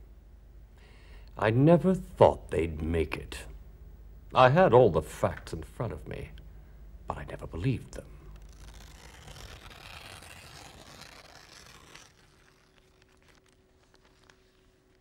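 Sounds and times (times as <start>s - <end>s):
newspaper pages rustling: 8.3s - 15.0s.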